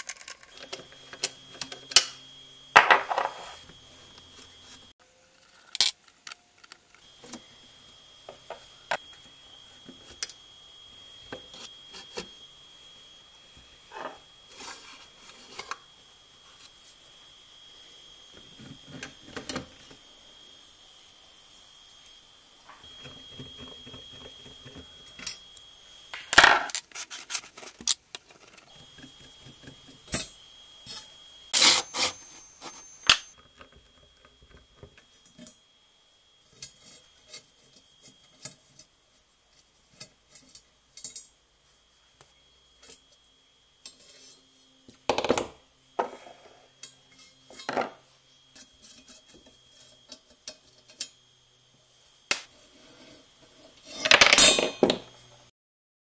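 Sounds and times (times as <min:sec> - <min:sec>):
small metallic clicks and scrapes: 0:00.0 - 0:02.1.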